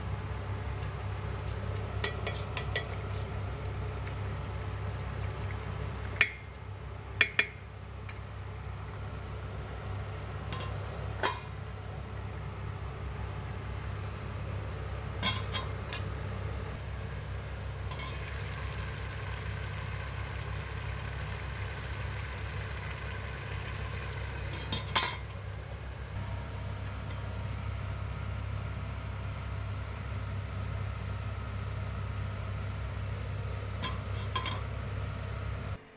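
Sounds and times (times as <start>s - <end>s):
steady low hum: 0.0s - 35.9s
spoon stirring rice: 0.3s - 6.5s
spoon knocking against pot: 7.2s - 7.6s.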